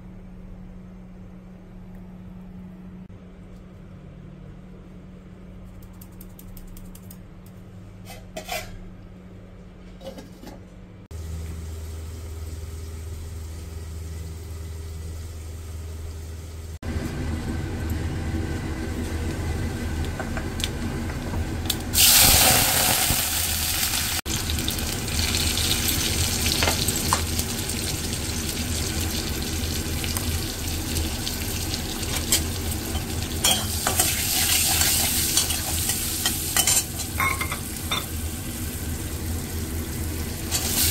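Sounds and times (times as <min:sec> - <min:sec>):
steady hum: 0:00.0 - 0:40.9
spatula scraping pan: 0:08.0 - 0:08.8
hot oil sizzling: 0:21.6 - 0:40.9.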